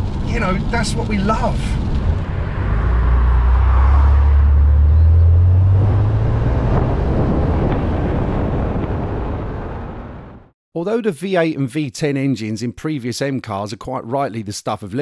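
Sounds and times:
car engine accelerating: 0:00.0 - 0:09.3
road and wind noise: 0:00.0 - 0:10.5.

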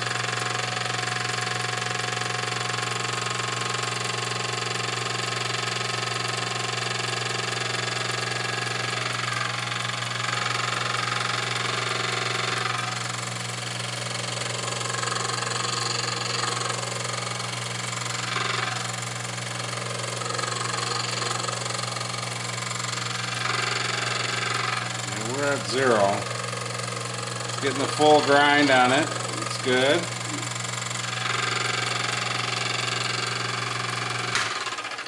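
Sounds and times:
grinding wheel motor hum: 0:00.0 - 0:35.0
grinding hiss: 0:11.4 - 0:34.6.

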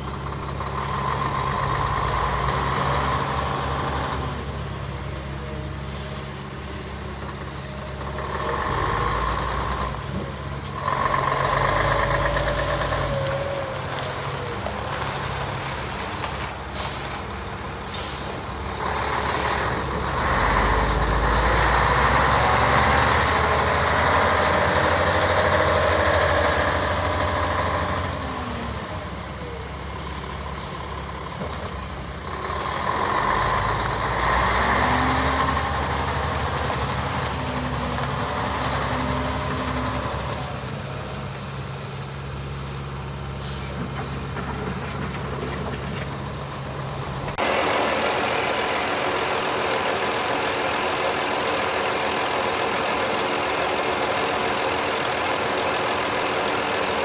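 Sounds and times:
diesel truck engine running: 0:00.0 - 0:57.0
air brake hiss: 0:16.4 - 0:17.2, 0:17.8 - 0:18.5, 0:43.4 - 0:43.8.

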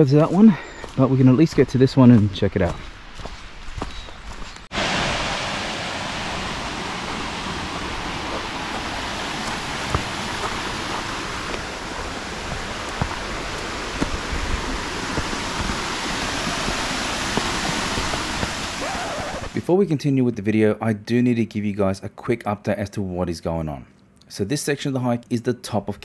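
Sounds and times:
creek water rushing over rocks: 0:04.7 - 0:19.6.

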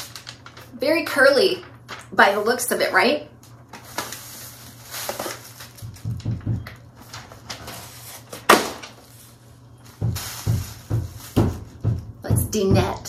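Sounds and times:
tissue paper rustling: 0:00.0 - 0:02.4, 0:03.7 - 0:06.2, 0:06.8 - 0:12.0
dull construction thumps: 0:05.8 - 0:06.8, 0:09.9 - 0:13.0.

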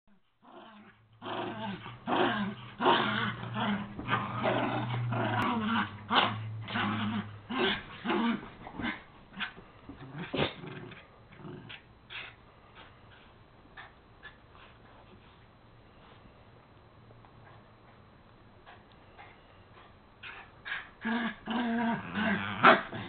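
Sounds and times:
dog play growling: 0:00.4 - 0:15.4, 0:18.6 - 0:23.0.

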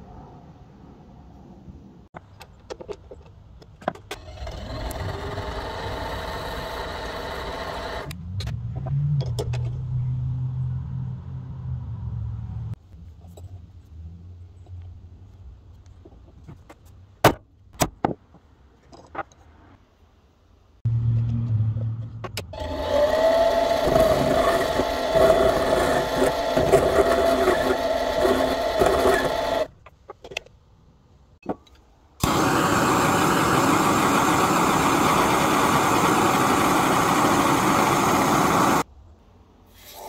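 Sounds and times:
power tool running: 0:04.3 - 0:08.2, 0:22.6 - 0:29.7, 0:32.2 - 0:38.9.

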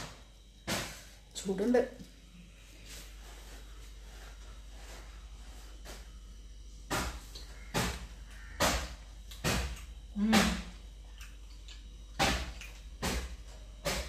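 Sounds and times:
person humming mm: 0:10.1 - 0:10.8
person chewing food: 0:10.8 - 0:14.0.

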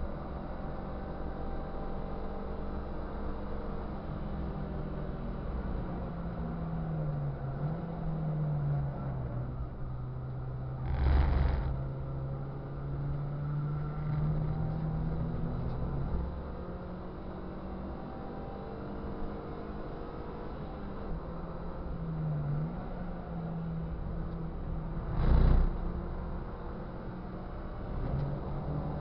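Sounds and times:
car rumbling over kerb: 0:10.8 - 0:11.8
race car engine under load: 0:10.8 - 0:11.8.

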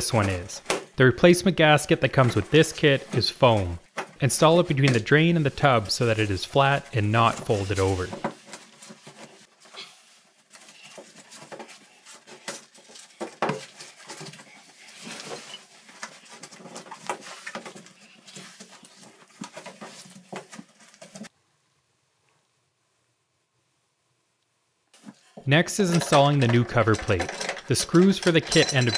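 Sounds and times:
gloved hands rubbing plastic parts: 0:00.0 - 0:21.3.

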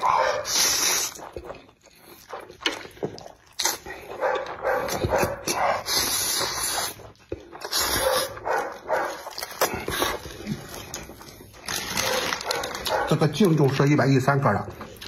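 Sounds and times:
man slurping noodles: 0:00.0 - 0:04.2, 0:04.8 - 0:08.4, 0:09.2 - 0:11.9
man chewing: 0:00.0 - 0:13.9, 0:14.7 - 0:15.0.

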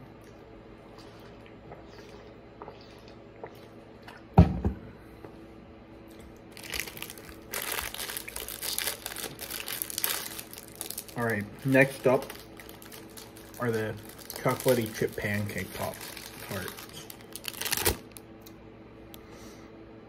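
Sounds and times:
snack packaging crinkling: 0:06.1 - 0:18.6.

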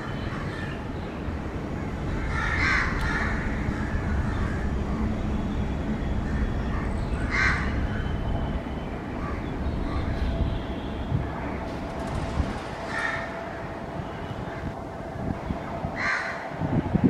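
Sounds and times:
freight train rumbling: 0:00.0 - 0:17.0
crow cawing: 0:02.2 - 0:04.6, 0:06.3 - 0:07.8, 0:12.9 - 0:13.3, 0:16.0 - 0:16.4.

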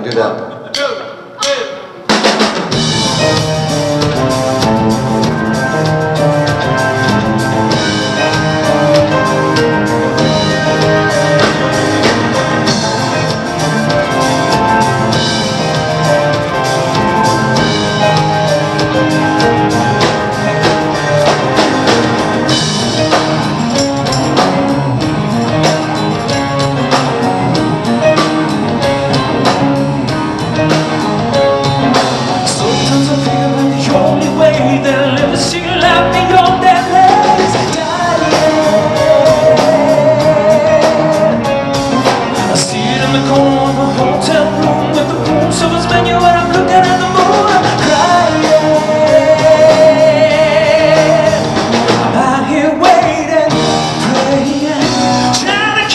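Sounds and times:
drums: 0:00.0 - 0:55.9
keyboards: 0:00.0 - 0:55.9
bass guitar: 0:02.1 - 0:55.9
electric guitar: 0:02.2 - 0:55.9
man singing lead: 0:24.0 - 0:55.9.

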